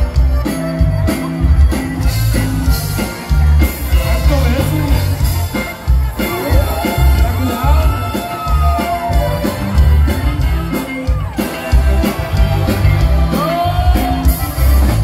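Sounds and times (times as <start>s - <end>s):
accordion: 0.0s - 15.0s
drums and bass beat: 0.0s - 15.0s
electric guitar: 0.0s - 15.0s
man singing lead vocal: 3.8s - 5.2s, 13.2s - 14.4s.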